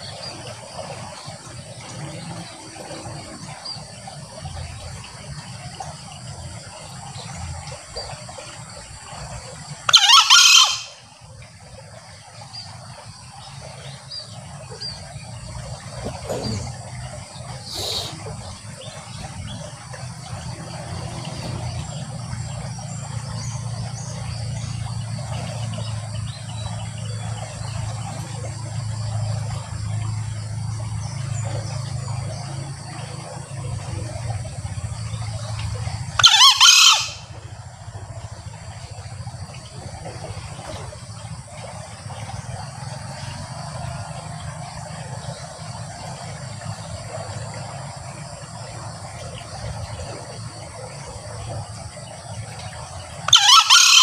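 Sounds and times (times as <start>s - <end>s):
junglefowl crowing: 9.9s - 11.0s, 36.2s - 37.4s, 53.3s - 54.0s.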